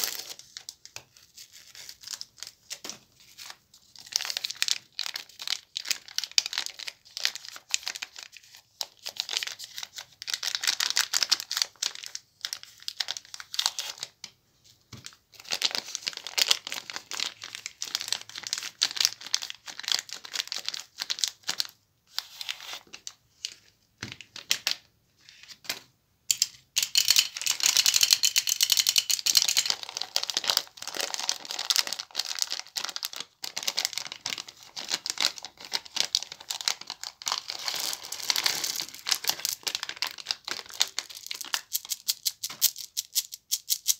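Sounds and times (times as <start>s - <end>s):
plastic wrappers crinkling and tearing: 0.0s - 14.2s, 15.0s - 23.7s, 27.2s - 43.9s.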